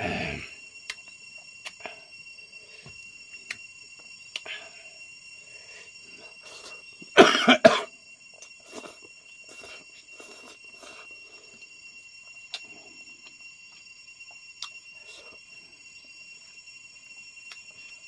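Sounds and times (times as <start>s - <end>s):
man coughing: 7.2s - 7.9s.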